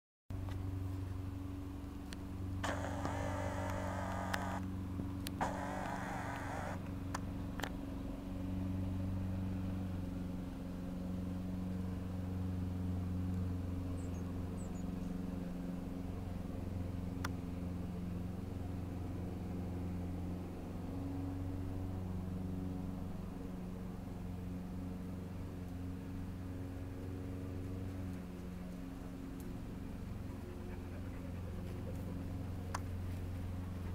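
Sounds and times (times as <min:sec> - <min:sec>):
low motor hum: 0:00.3 - 0:33.9
faint clicks: 0:02.1 - 0:04.6, 0:05.2 - 0:07.8
short hissy bursts: 0:02.6 - 0:04.6, 0:05.4 - 0:06.8.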